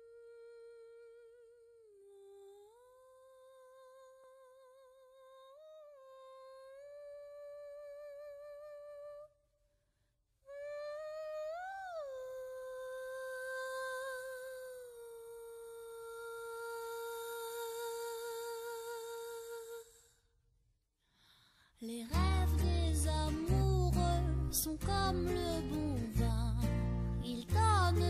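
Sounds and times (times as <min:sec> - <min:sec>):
woman humming with vibrato: 0:00.0 - 0:09.3.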